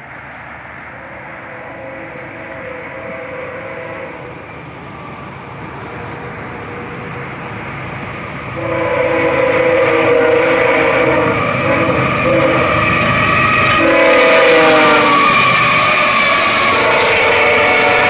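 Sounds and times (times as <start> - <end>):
diesel locomotive rumble: 0.0 - 18.0
train air horn chord: 1.0 - 4.5, 8.6 - 18.0.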